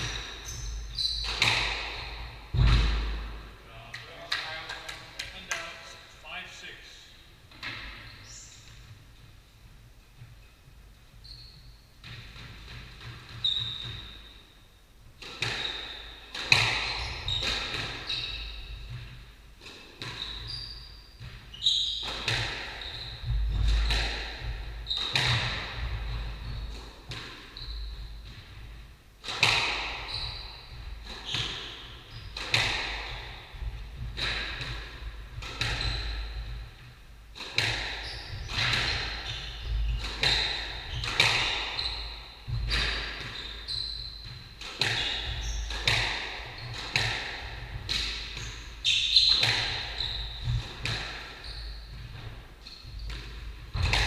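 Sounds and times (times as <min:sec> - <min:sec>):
squash ball hit by rackets: 0:00.0 - 0:03.5, 0:15.2 - 0:20.5, 0:21.2 - 0:54.0
ball smacking off court walls: 0:01.0 - 0:05.3, 0:53.0 - 0:54.0.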